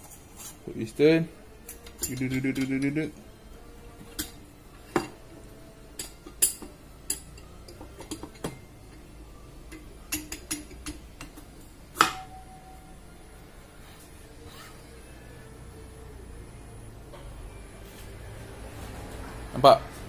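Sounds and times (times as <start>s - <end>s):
metal clinks and taps: 6.0s - 8.7s, 9.7s - 12.3s.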